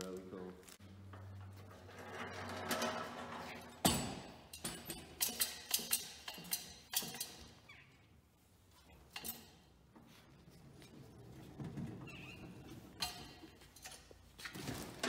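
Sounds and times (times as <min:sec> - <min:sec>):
pallet jack clanking and rattling: 0:01.2 - 0:07.6.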